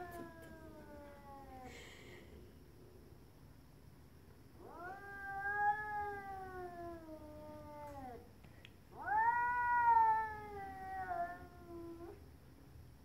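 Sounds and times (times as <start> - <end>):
cat yowling: 4.6 - 8.2, 9.0 - 12.2.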